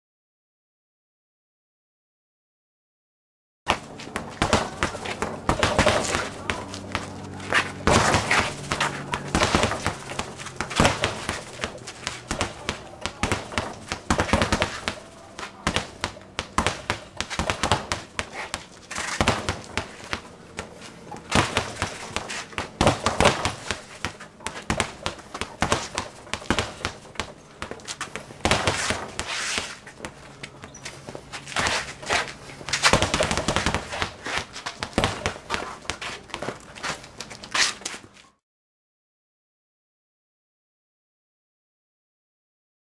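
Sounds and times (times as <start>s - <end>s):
fists slapping speed bag: 3.7s - 36.9s.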